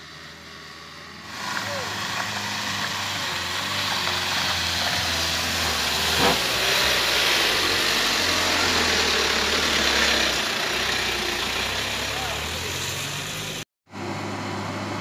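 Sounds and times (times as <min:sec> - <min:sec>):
diesel truck engine passing: 0:00.0 - 0:15.0
tyre hiss on gravel: 0:01.3 - 0:07.8.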